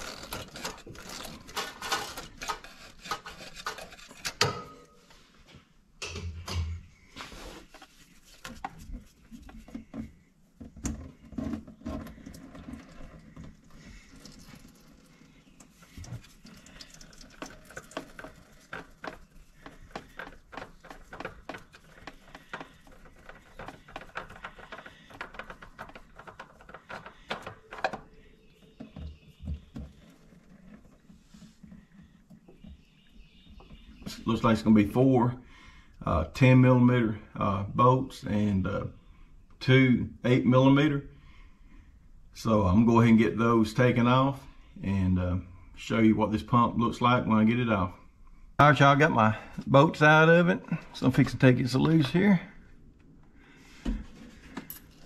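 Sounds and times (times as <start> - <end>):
oil filter wrench scraping and clicking: 0.0 - 4.5
oil filter clicking and tapping: 9.4 - 34.2.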